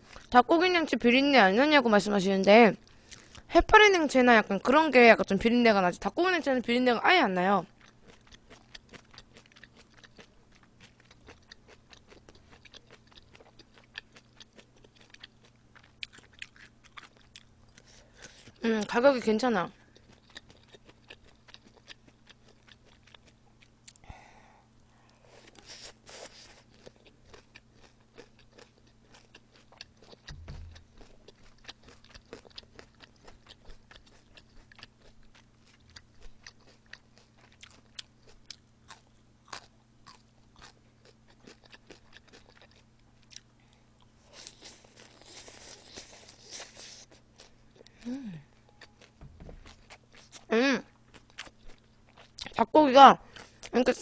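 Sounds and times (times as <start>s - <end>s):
chewing and crunching salad: 0.0s - 5.4s, 6.0s - 24.0s, 25.1s - 54.0s
soft low bump: 30.3s - 31.1s, 49.2s - 50.0s.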